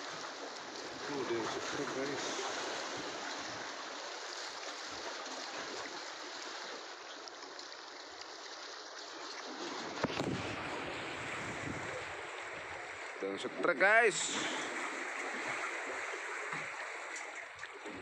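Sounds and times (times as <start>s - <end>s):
sea water washing against rocks: 0.0s - 7.4s, 9.1s - 18.0s.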